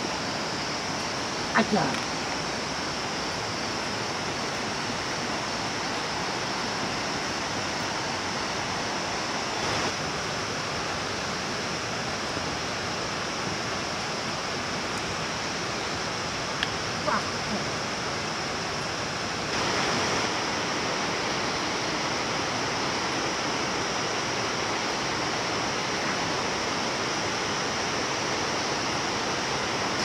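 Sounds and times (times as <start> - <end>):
stream rushing: 0.0 - 30.0.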